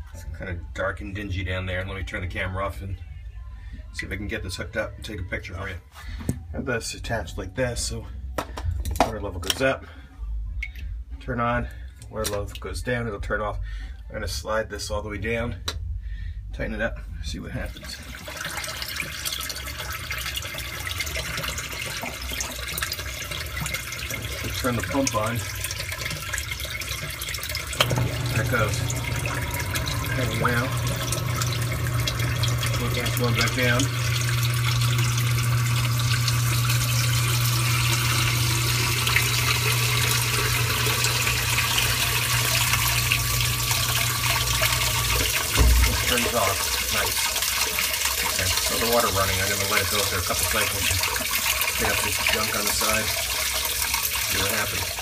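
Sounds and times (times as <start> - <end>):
sump pump humming: 17.7 - 55.0
water pouring and splashing: 17.7 - 55.0
motor stopping thump: 27.8 - 35.1, 38.7 - 46.4.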